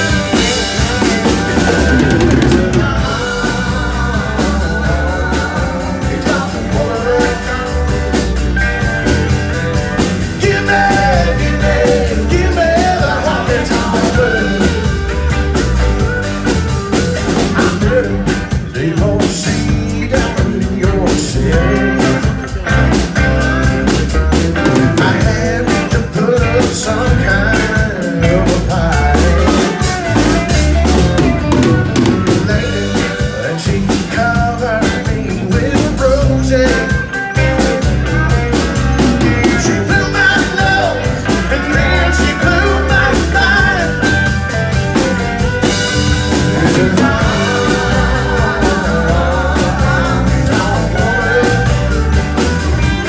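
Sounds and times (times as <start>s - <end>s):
live rock band playing: 0.0s - 53.0s.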